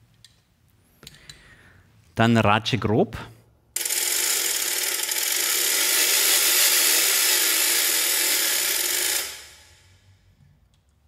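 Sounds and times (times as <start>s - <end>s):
ratchet rattling: 3.8s - 10.0s.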